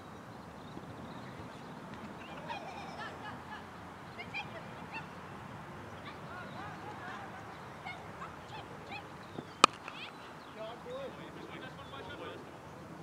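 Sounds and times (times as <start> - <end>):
birds calling: 0.0 - 13.0
cricket bat hitting ball: 9.6 - 10.2.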